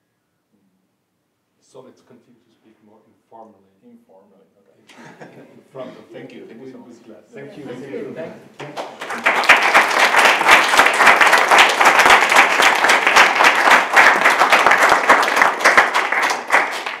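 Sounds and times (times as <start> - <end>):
crowd applauding: 8.6 - 17.0.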